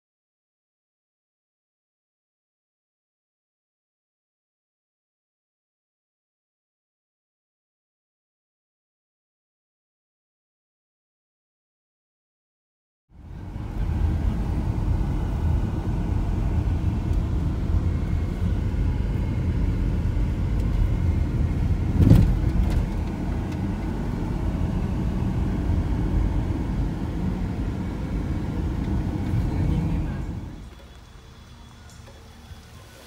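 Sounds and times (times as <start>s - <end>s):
van engine and tyres rumbling: 13.1s - 33.0s
sharp thump: 21.9s - 23.0s.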